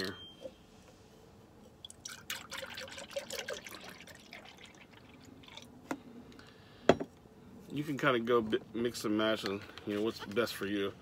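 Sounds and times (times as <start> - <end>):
milk pouring and splashing into cup: 1.7 - 5.8.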